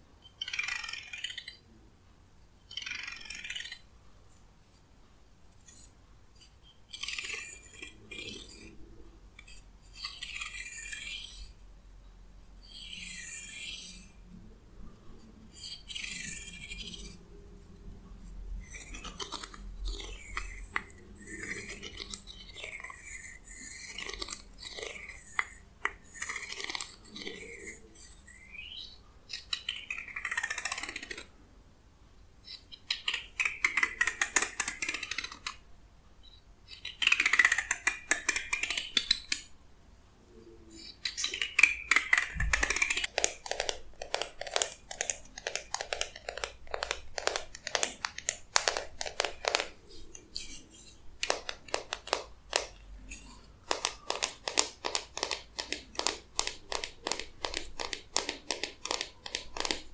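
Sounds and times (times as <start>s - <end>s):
fingers strumming comb teeth: 41.0s - 59.9s.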